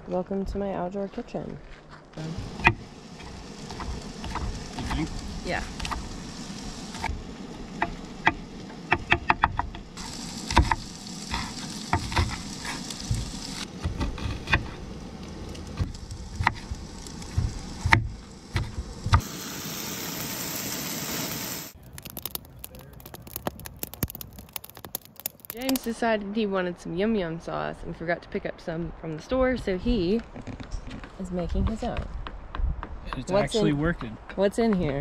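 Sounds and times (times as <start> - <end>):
chicken sizzling in skillet: 2.4 - 8.2, 10.0 - 13.7, 15.9 - 21.8
knife chopping on wooden board: 17.3 - 19.2
small crackling ticks: 21.8 - 25.9.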